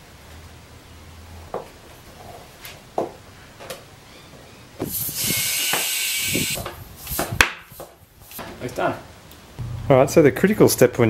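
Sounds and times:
compressed air hissing: 0:04.8 - 0:06.6.

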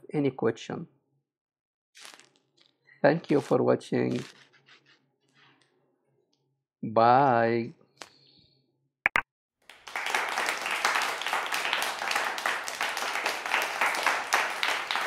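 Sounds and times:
crowd clapping and applause: 0:09.6 - 0:15.0.

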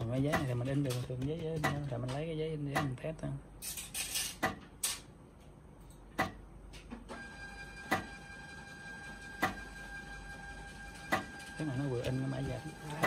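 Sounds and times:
printer sharp clicks: 0:07.1 - 0:08.2, 0:09.3 - 0:09.7, 0:10.9 - 0:13.0
printer motor whine: 0:07.1 - 0:13.0.

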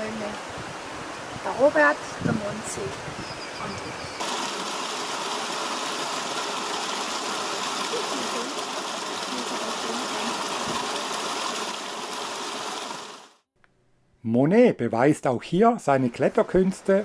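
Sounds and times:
water spilling over rocks: 0:04.2 - 0:13.4.

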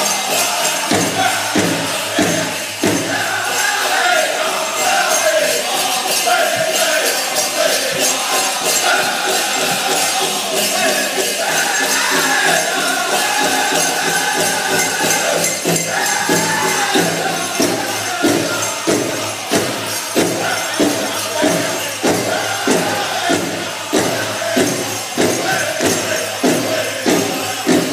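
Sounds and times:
bells jingling: 0:00.0 - 0:27.9
big drum beats: 0:00.0 - 0:27.9
drum group singing: 0:00.0 - 0:27.9.

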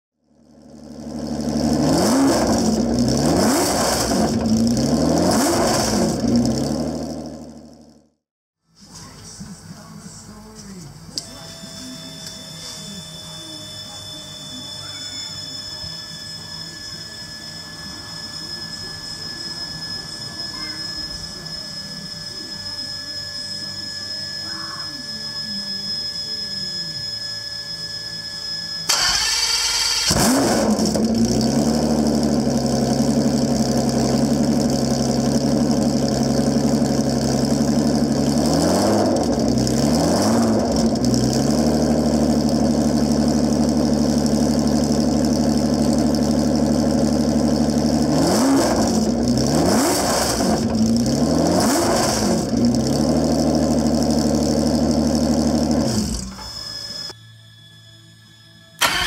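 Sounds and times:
engine idling: 0:00.2 - 0:08.2, 0:09.8 - 0:57.1, 0:58.8 - 0:59.0
high whine: 0:00.2 - 0:59.0
engine throttle blips: 0:00.3 - 0:08.2, 0:10.1 - 0:57.3, 0:58.8 - 0:59.0
starter cranking: 0:58.8 - 0:59.0.

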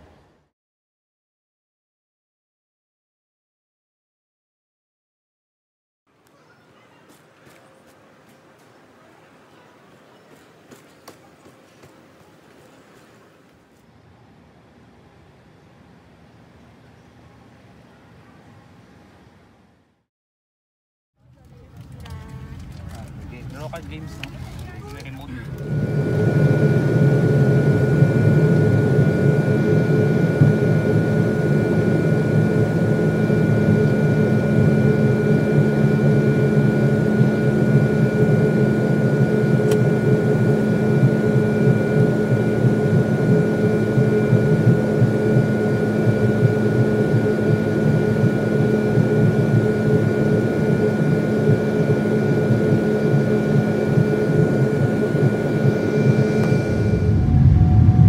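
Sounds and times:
thin engine whine: 0:21.7 - 0:58.0
jet engine rush: 0:21.8 - 0:58.0.

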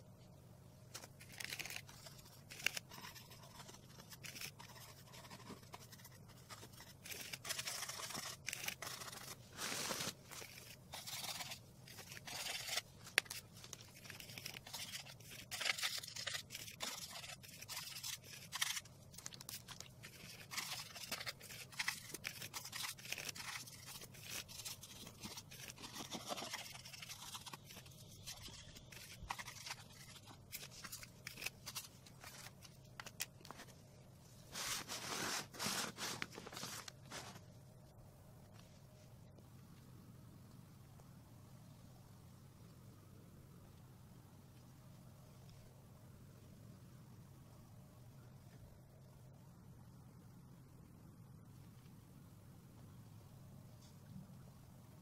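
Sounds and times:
low steady hum: 0:00.0 - 0:55.0
paintbrush scrubbing on cardboard: 0:34.5 - 0:37.4.

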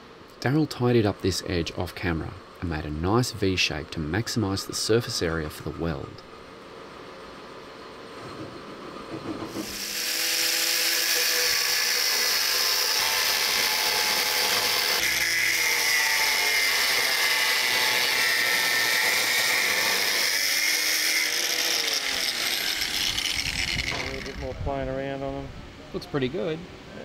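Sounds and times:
angle grinder cutting steel: 0:09.5 - 0:24.6.

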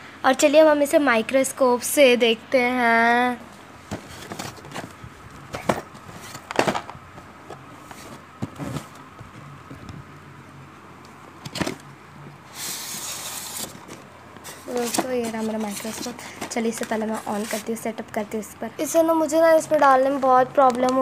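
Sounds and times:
cardboard box rustling: 0:03.9 - 0:09.6, 0:12.5 - 0:17.8.

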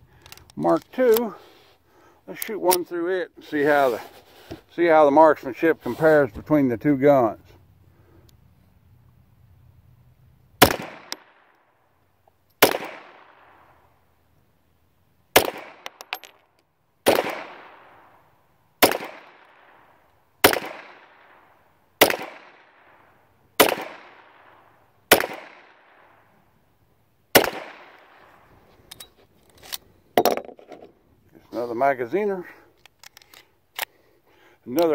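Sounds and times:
pistol shots with echo: 0:10.6 - 0:11.5, 0:12.6 - 0:13.6, 0:15.4 - 0:16.1, 0:17.0 - 0:18.2, 0:18.8 - 0:26.2, 0:27.3 - 0:28.2.

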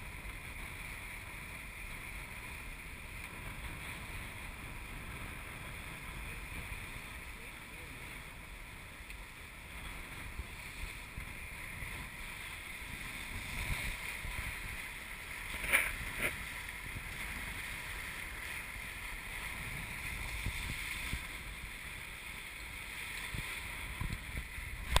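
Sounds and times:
water rushing along hulls: 0:00.0 - 0:25.0
wind rumble on microphone: 0:00.0 - 0:25.0.

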